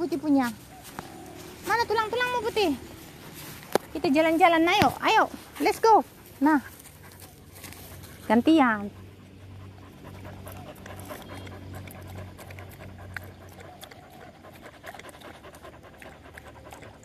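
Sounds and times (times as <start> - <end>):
dog lapping water: 9.9 - 17.0.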